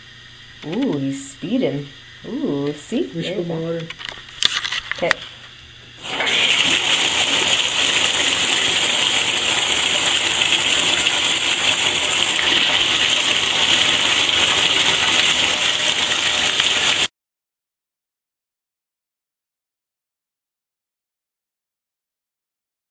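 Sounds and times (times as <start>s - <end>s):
bathtub faucet running: 5.9s - 17.1s.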